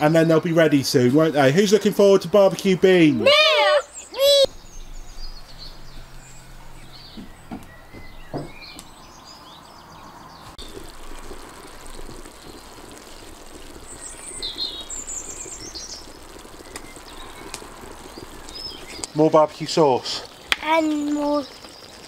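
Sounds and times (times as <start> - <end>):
wood fire crackling: 0.0 - 9.6, 10.4 - 22.0
birds chirping: 0.0 - 22.0
beans simmering in a pot: 10.5 - 22.0.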